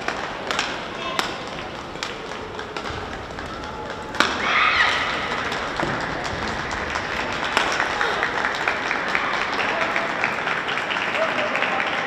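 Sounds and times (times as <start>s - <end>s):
people clapping: 0.0s - 12.0s
racket striking shuttlecock: 0.1s - 8.0s.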